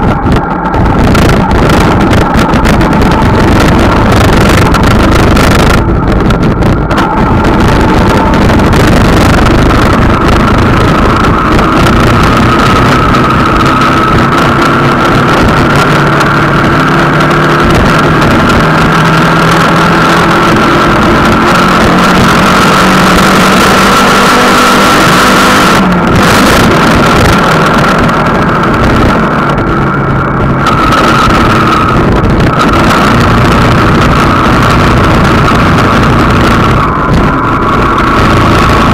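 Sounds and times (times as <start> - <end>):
steady high whine: 0.0 - 38.9
vehicle engine running: 0.0 - 38.9
wind on microphone: 0.0 - 38.9.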